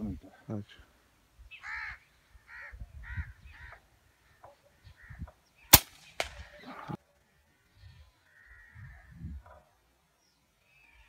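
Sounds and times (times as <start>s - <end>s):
crows cawing: 1.5s - 5.4s, 7.6s - 9.1s
air rifle shot: 5.7s - 6.6s.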